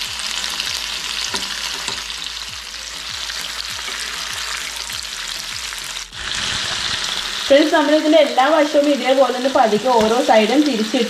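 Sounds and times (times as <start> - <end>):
meat sizzling in hot oil: 0.0 - 11.0
oil crackling: 0.0 - 11.0
spatula scraping a pan: 3.4 - 5.2.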